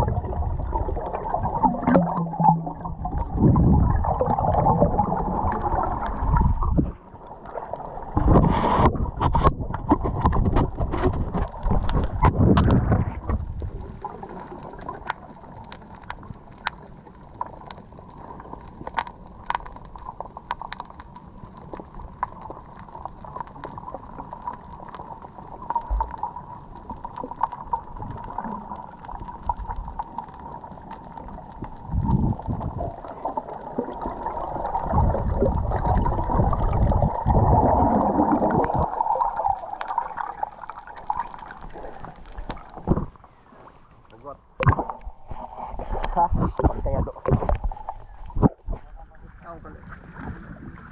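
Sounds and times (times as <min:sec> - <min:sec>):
water gurgling and bubbling: 0:00.0 - 0:16.4, 0:22.1 - 0:43.2, 0:44.5 - 0:50.9
sharp underwater clicks: 0:44.6 - 0:45.2.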